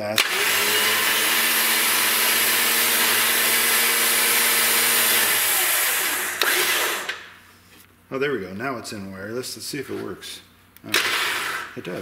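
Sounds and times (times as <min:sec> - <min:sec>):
electric winch motor whining: 0:00.2 - 0:07.2.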